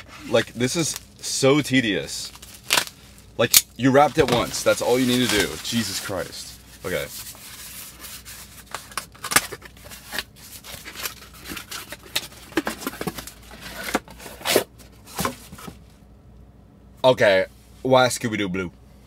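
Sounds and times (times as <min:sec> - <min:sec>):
cardboard and plastic rustling: 0:03.8 - 0:15.9.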